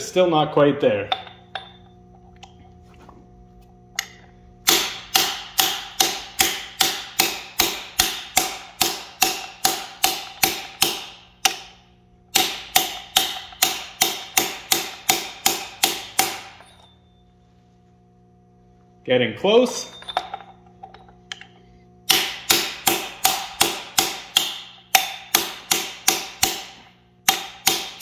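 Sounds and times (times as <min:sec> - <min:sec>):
metal-on-metal hammer strikes: 0:01.0 - 0:01.9, 0:04.0 - 0:17.0, 0:19.7 - 0:28.0.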